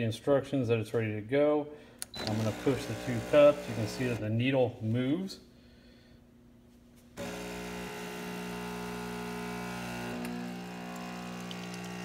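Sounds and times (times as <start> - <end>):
espresso machine pump humming: 2.1 - 4.2, 7.2 - 12.0.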